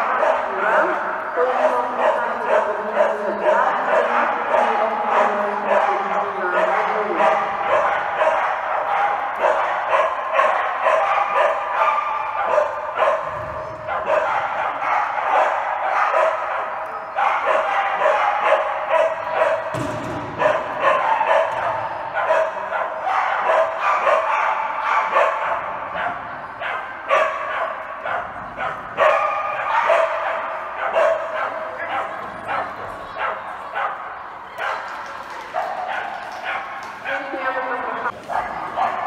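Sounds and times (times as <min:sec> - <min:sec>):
dog barking: 0:00.0 - 0:01.0, 0:01.6 - 0:34.9, 0:35.5 - 0:37.2, 0:38.3 - 0:39.0
people talking: 0:00.0 - 0:08.3, 0:31.6 - 0:35.6, 0:37.0 - 0:39.0.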